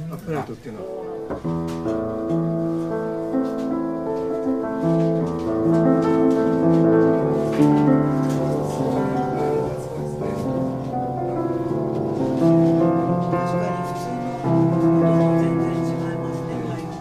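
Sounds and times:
upright piano playing: 0:00.0 - 0:17.0.

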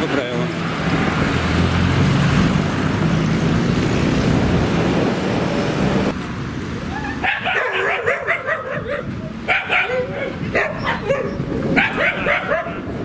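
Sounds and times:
street traffic: 0:00.0 - 0:13.0
dog whining and yelping: 0:06.9 - 0:12.9.

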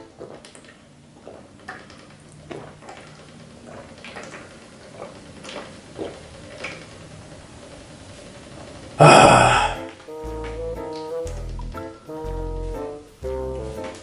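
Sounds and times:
person gulping water: 0:09.0 - 0:09.8.

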